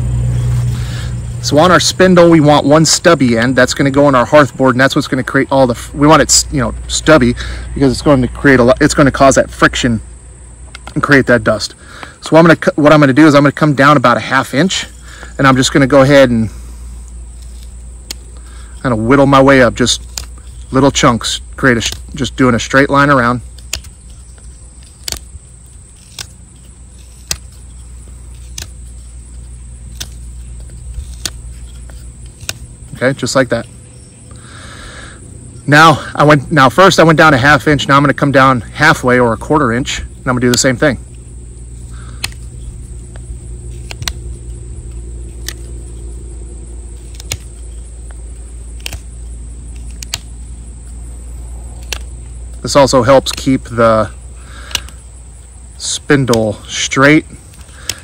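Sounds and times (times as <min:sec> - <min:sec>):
high insect drone: 0:00.0 - 0:58.0
low hum: 0:00.0 - 0:58.0
knife cutting wood chips: 0:14.7 - 0:35.0, 0:35.8 - 0:58.0.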